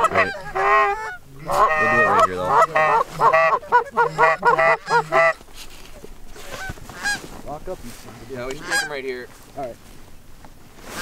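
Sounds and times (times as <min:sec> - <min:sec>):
goose honks and clucks: 0:00.0 - 0:05.4, 0:06.4 - 0:07.2, 0:08.5 - 0:09.0.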